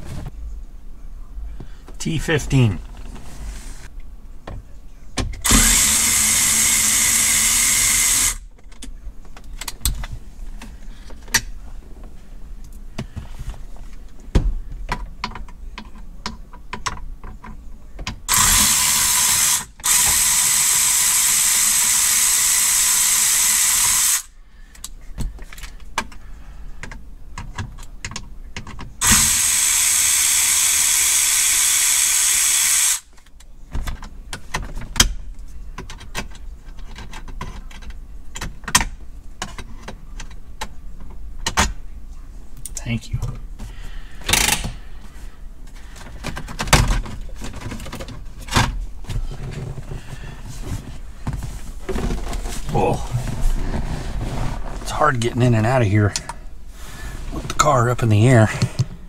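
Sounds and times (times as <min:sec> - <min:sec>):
cordless power driver whirring: 0:05.4 - 0:08.4, 0:18.3 - 0:24.3, 0:29.0 - 0:33.1.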